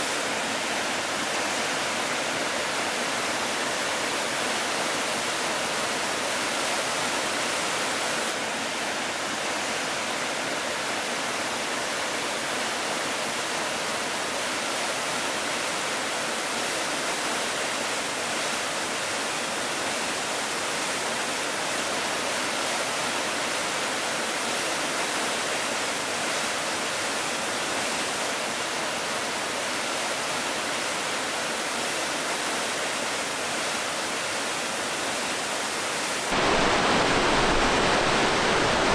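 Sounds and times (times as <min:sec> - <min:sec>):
water rushing over rock: 0:32.8 - 0:38.9.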